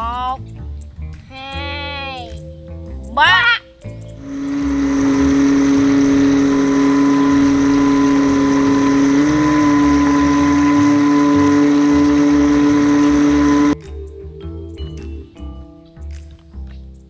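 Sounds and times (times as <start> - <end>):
toy boat motor whining: 4.2 - 13.8
water rushing along hull: 4.2 - 13.8.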